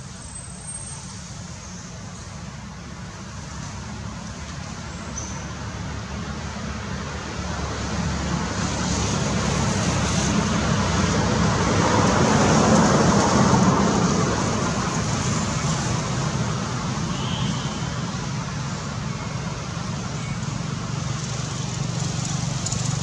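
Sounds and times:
vehicle passing on road: 0:05.6 - 0:23.0.

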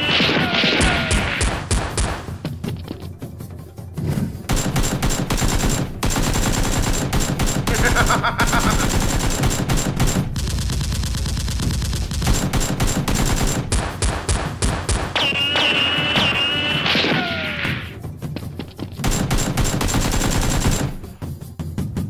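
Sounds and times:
rapid automatic gunfire: 0:04.5 - 0:15.2, 0:19.0 - 0:21.1.

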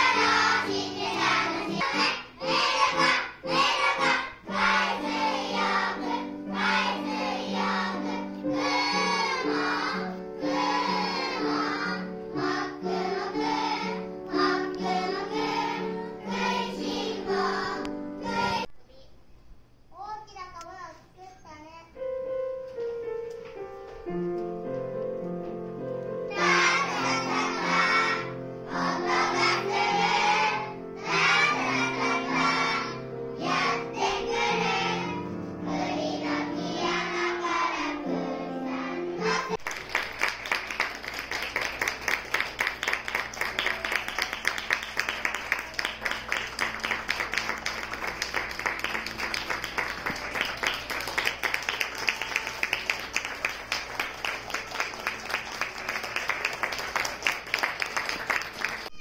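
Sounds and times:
children singing together: 0:00.0 - 0:18.7, 0:26.3 - 0:39.6
keyboard accompaniment: 0:22.0 - 0:39.6
audience applause: 0:39.6 - 0:59.0.

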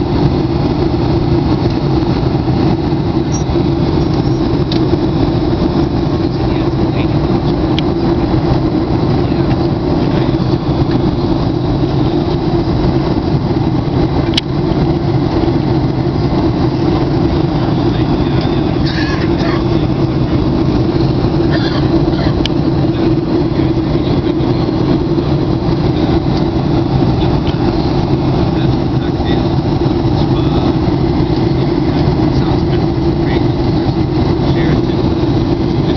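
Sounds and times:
airliner cabin engine drone: 0:00.0 - 0:35.9.

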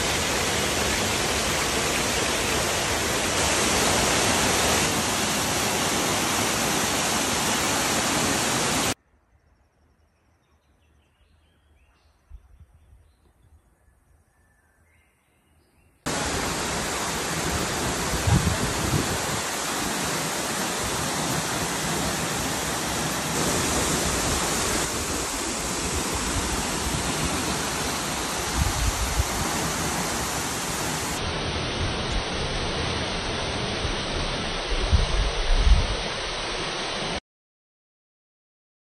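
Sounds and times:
waterfall rushing into pool: 0:00.0 - 0:09.0, 0:16.1 - 0:37.2.

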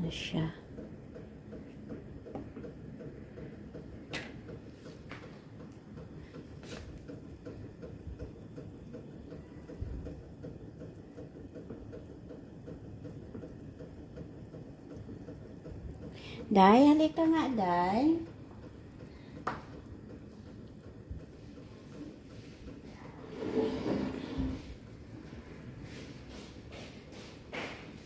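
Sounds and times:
pot of water boiling: 0:00.0 - 0:28.0.

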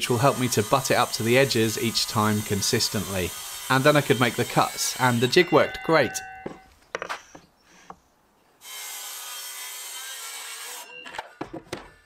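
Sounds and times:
circular saw cutting plywood: 0:00.0 - 0:06.6, 0:08.6 - 0:10.9.

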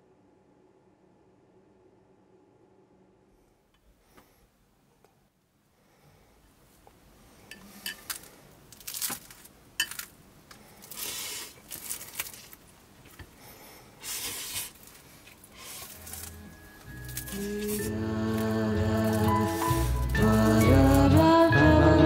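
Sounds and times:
noisy slurping of noodles: 0:10.9 - 0:11.6, 0:14.0 - 0:14.8, 0:15.5 - 0:16.3.

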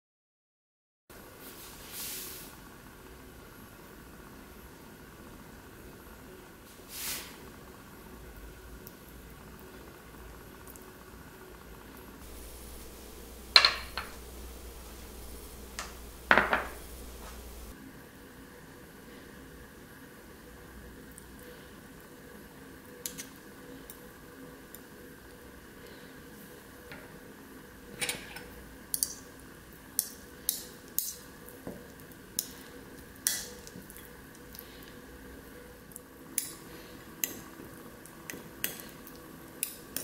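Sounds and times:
glass bowls clinking: 0:12.2 - 0:17.7.

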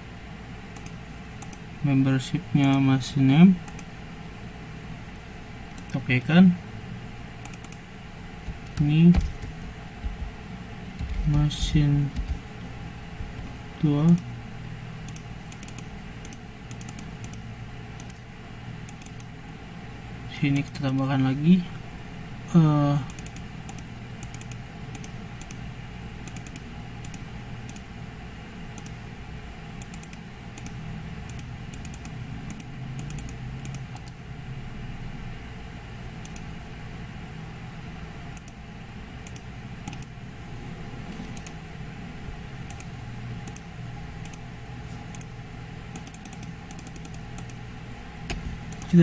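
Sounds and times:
steady low hum: 0:00.0 - 0:49.0
computer keyboard typing: 0:00.8 - 0:01.6, 0:07.4 - 0:07.8, 0:08.4 - 0:10.3, 0:11.0 - 0:12.5, 0:15.0 - 0:17.4, 0:18.0 - 0:18.2, 0:18.9 - 0:19.3, 0:20.5 - 0:21.1, 0:23.0 - 0:25.6, 0:26.2 - 0:27.9, 0:29.8 - 0:34.2, 0:39.2 - 0:40.1, 0:45.1 - 0:45.3, 0:45.9 - 0:47.6, 0:48.3 - 0:49.0.

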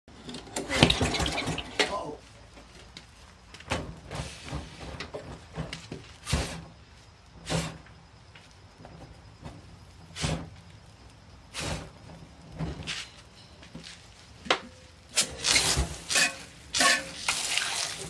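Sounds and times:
rag wiping mower engine: 0:15.2 - 0:18.0.

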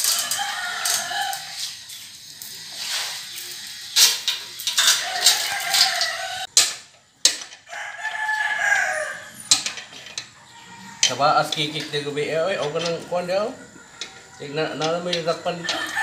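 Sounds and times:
rooster crowing: 0:00.0 - 0:01.8, 0:04.7 - 0:06.5, 0:07.6 - 0:09.6, 0:10.4 - 0:14.8, 0:15.4 - 0:16.0.

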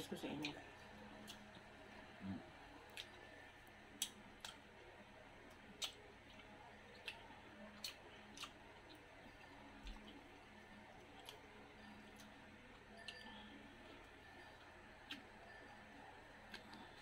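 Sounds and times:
mouth clicks and smacks chewing: 0:02.9 - 0:03.2, 0:05.6 - 0:09.1.

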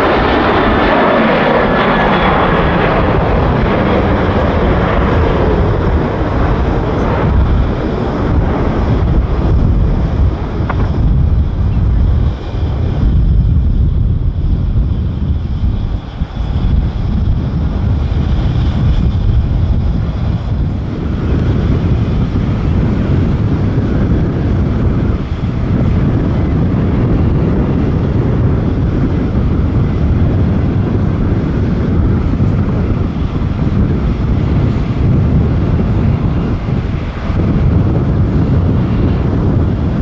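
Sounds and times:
jet engine low rumble: 0:00.0 - 0:40.0.

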